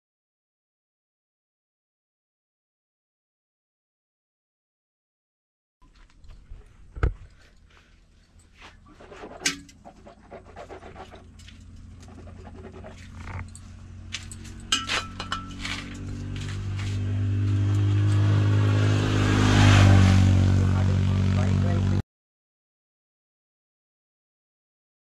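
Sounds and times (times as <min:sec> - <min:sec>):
motorcycle engine running: 0:09.9 - 0:22.0
scattered clicks and knocks: 0:11.0 - 0:17.0.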